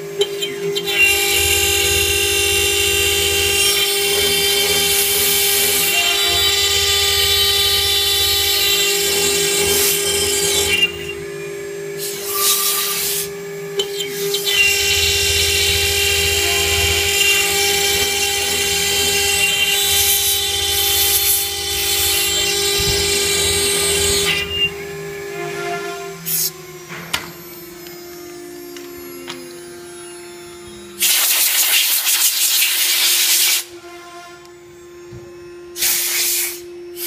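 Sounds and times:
router spindle whine: 0:00.0 - 0:37.0
harsh cutting hiss: 0:31.0 - 0:33.7, 0:35.8 - 0:37.0.

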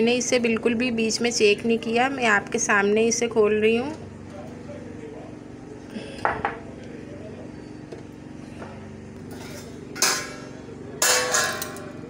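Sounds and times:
steady low hum: 0:00.0 - 0:12.0
metal pot lid clanking: 0:09.3 - 0:12.0.

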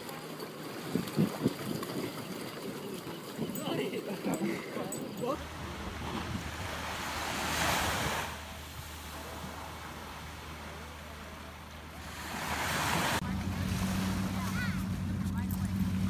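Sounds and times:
wind rumbling on microphone: 0:00.8 - 0:03.8, 0:05.0 - 0:10.8
surf washing on a beach: 0:05.4 - 0:16.0.

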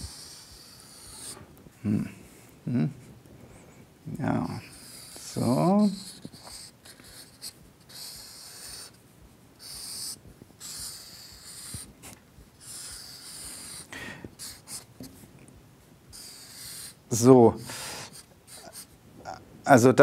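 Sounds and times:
marker scratching on paper: 0:00.0 - 0:01.5, 0:04.4 - 0:09.0, 0:09.6 - 0:15.2, 0:16.1 - 0:17.3, 0:18.1 - 0:19.0.

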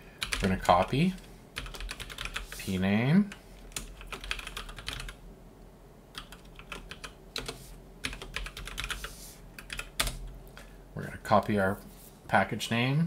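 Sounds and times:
typing on computer keyboard: 0:00.2 - 0:00.7, 0:01.6 - 0:02.5, 0:03.7 - 0:05.2, 0:06.1 - 0:10.3.

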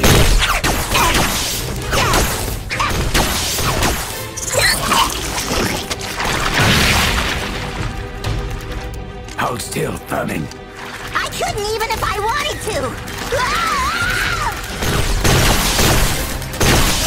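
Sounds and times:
cartoon action music: 0:00.0 - 0:07.4.

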